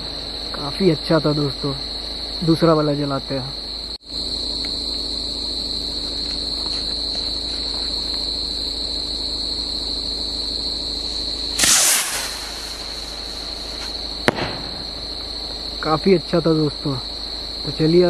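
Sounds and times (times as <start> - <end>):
crickets chirring: 0.0 - 18.0
rocket launch whoosh: 11.6 - 13.3, 14.3 - 15.0
firework bursting crack: 11.6 - 15.6.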